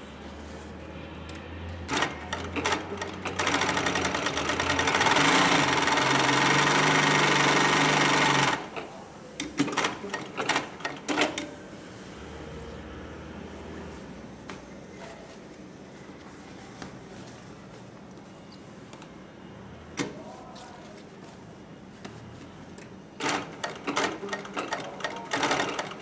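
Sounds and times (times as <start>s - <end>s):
sewing machine stitching rapidly: 1.9s - 8.7s, 9.6s - 11.4s, 23.2s - 26.0s.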